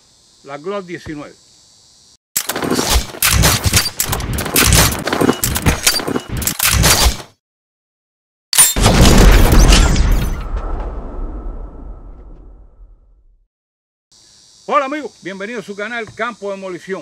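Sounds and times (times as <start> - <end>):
loud rumbling boom: 8.8 - 13.3.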